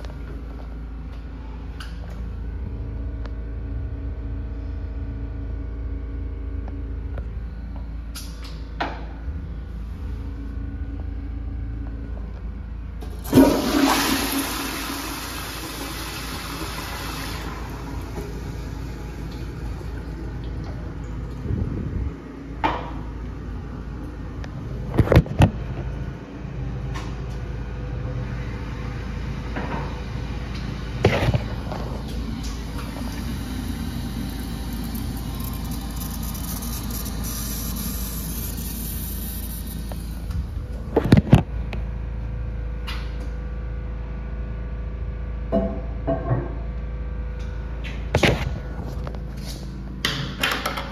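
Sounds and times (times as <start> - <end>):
toilet flushing whoosh: 13.1 - 22.2, 31.0 - 40.3
toilet refilling hiss: 13.2 - 20.6, 32.6 - 40.2.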